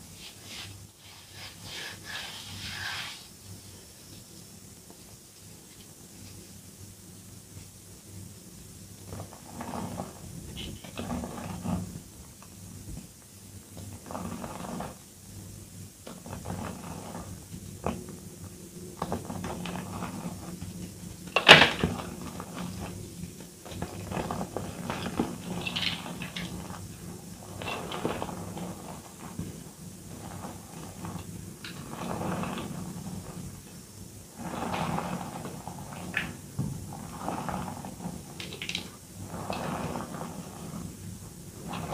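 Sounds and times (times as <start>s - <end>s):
chalk crunching and rustling: 0.1s - 3.4s, 21.9s - 33.5s.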